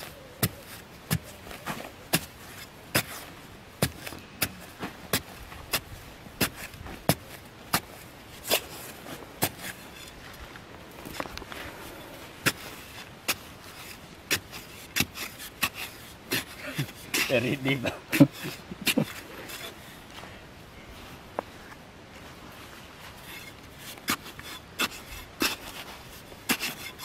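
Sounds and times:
digging tool striking hard earth: 0:00.0 - 0:10.2, 0:12.4 - 0:19.8, 0:23.2 - 0:27.0
soil crumbling: 0:00.0 - 0:20.4, 0:22.9 - 0:27.0.

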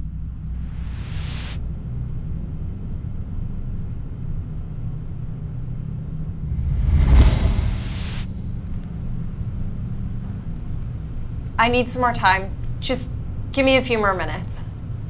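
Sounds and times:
low rumbling drone: 0:05.7 - 0:11.3
whoosh: 0:06.2 - 0:08.8.

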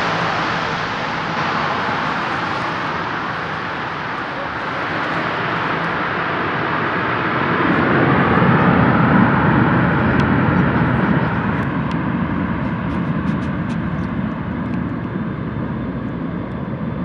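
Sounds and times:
propeller plane engines roaring: 0:00.0 - 0:17.0.

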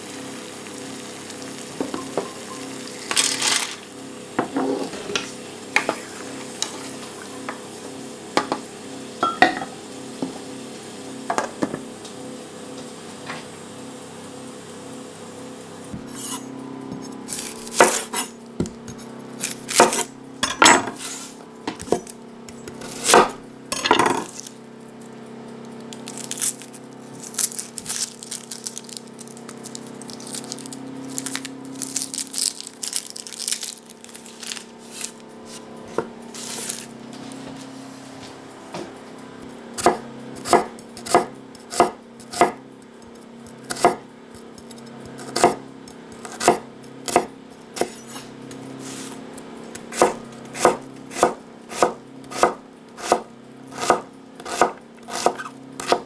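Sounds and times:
knife chopping on wooden board: 0:17.4 - 0:18.9, 0:21.7 - 0:23.4, 0:39.8 - 0:42.6, 0:43.7 - 0:45.6, 0:46.2 - 0:48.2, 0:49.8 - 0:56.0
onion skin crackling and rustling: 0:24.2 - 0:25.2, 0:25.8 - 0:35.7, 0:36.3 - 0:37.7.

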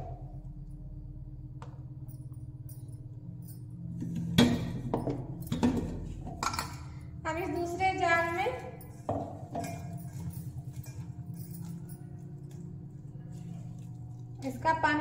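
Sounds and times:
steady low hum: 0:00.0 - 0:15.0
steel jars clinking and knocking: 0:04.2 - 0:12.6.

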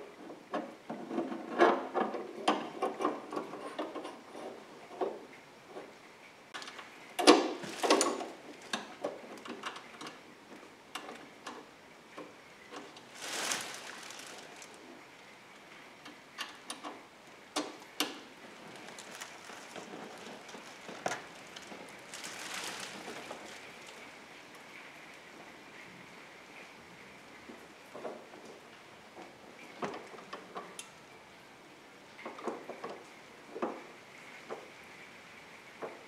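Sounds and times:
rustling scrapes: 0:07.4 - 0:08.8, 0:12.7 - 0:15.0, 0:18.4 - 0:24.2.

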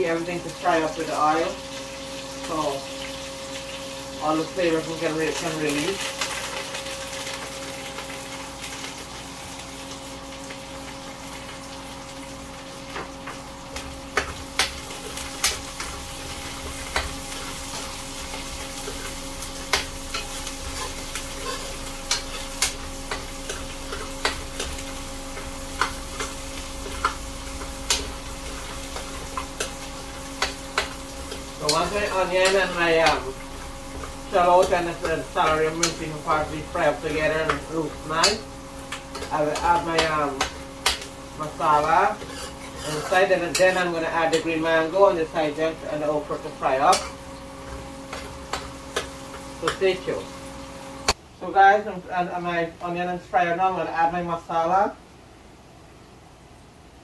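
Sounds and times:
onions sizzling in hot oil: 0:00.0 - 0:51.2
range hood fan humming: 0:00.0 - 0:57.0
spoon scraping a pot: 0:17.0 - 0:24.9, 0:41.8 - 0:44.4.

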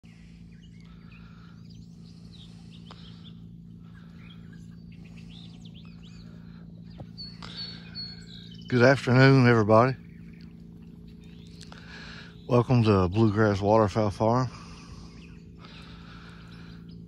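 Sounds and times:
pump motor low hum: 0:00.0 - 0:17.0
songbirds chirping: 0:00.0 - 0:17.0.

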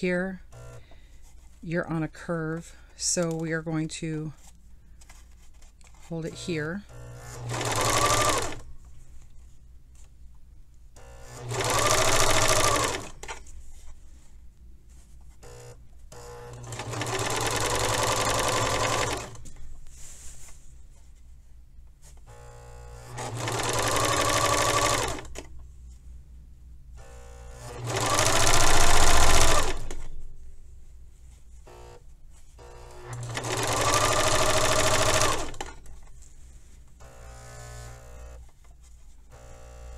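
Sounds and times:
serger motor stitching: 0:00.5 - 0:00.8, 0:06.2 - 0:08.7, 0:11.0 - 0:13.4, 0:15.4 - 0:19.5, 0:22.3 - 0:25.5, 0:27.0 - 0:30.1, 0:31.7 - 0:32.0, 0:32.6 - 0:36.0, 0:37.0 - 0:38.5, 0:39.3 - 0:39.9.

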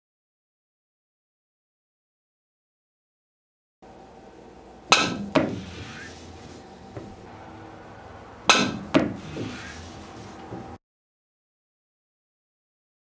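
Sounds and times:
cue striking pool ball: 0:04.9 - 0:06.1, 0:08.4 - 0:09.8.

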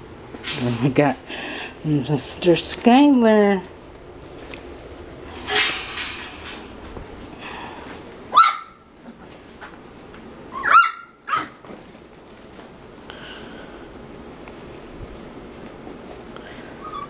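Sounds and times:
puppies yipping: 0:08.3 - 0:08.8, 0:10.5 - 0:11.6, 0:16.8 - 0:17.0.

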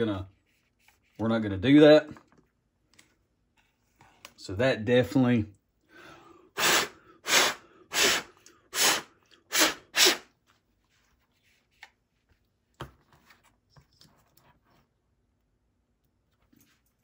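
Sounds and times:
person blowing puffs of breath: 0:05.9 - 0:10.3.

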